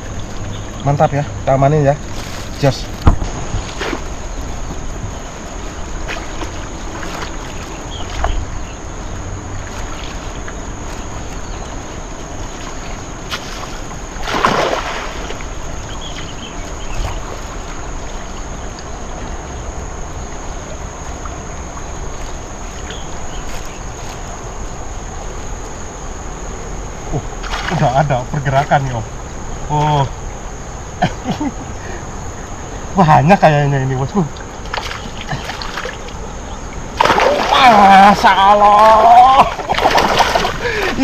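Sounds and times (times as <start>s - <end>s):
water sloshing: 2.0s - 8.7s, 9.4s - 18.9s, 34.4s - 41.0s
cast net splash: 13.3s - 15.4s, 27.4s - 27.8s, 34.6s - 36.1s, 37.0s - 41.0s.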